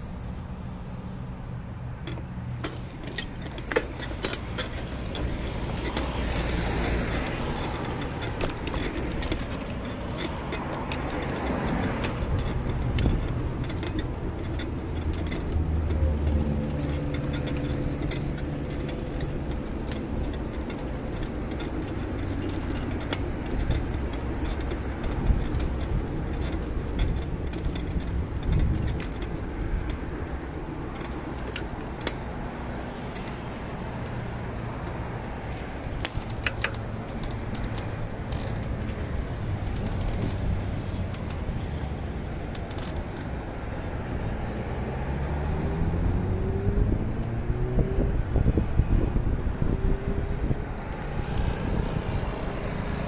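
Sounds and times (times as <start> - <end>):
nearby vehicle accelerating: 0.0 - 53.0
vehicle riding rumble and hum: 0.0 - 53.0
short rattles: 1.9 - 43.4.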